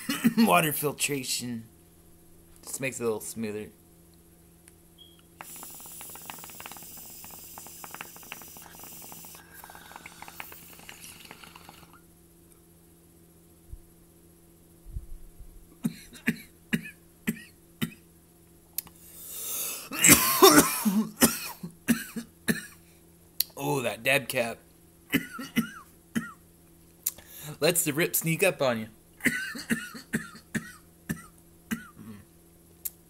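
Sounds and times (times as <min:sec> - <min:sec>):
man coughing: 0:00.0 - 0:00.4, 0:19.9 - 0:22.8, 0:25.1 - 0:26.4, 0:29.2 - 0:32.3.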